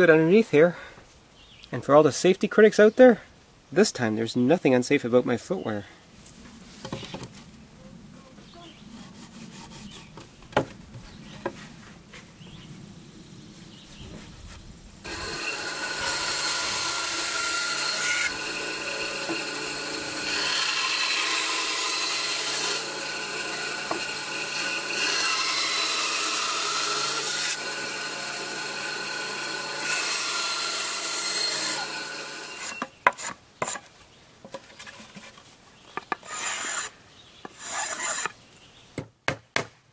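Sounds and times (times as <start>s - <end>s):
band saw cutting wood: 15.0s - 33.8s, 36.1s - 36.9s, 37.5s - 38.4s.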